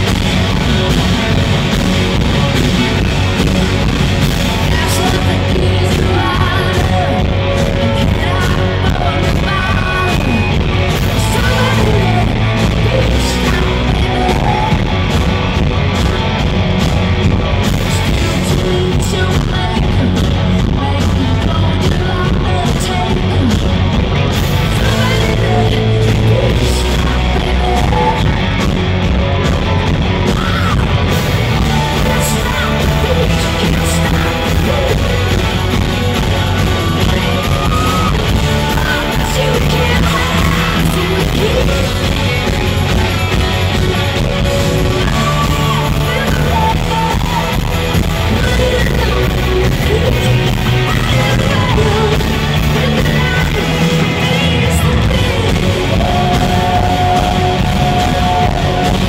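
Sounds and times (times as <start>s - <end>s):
live rock band playing: 0.0s - 59.0s
woman singing: 4.3s - 15.2s, 17.7s - 23.7s, 24.6s - 28.8s, 31.5s - 59.0s.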